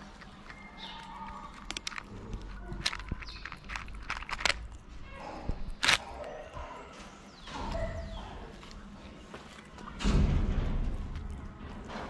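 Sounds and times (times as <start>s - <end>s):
cat crunching dry food: 0.0s - 5.1s, 5.7s - 6.2s.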